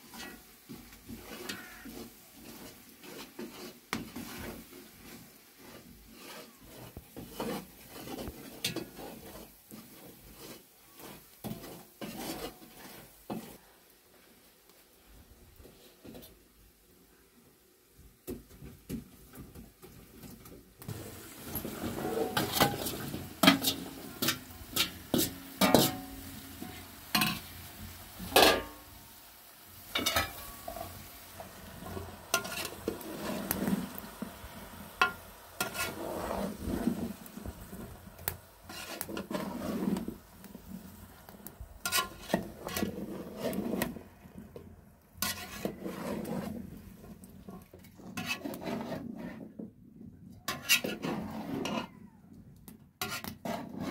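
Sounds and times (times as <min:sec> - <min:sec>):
cookware and utensils clinking: 0:20.9 - 0:29.0, 0:29.8 - 0:34.0, 0:35.0 - 0:36.7, 0:41.8 - 0:43.0.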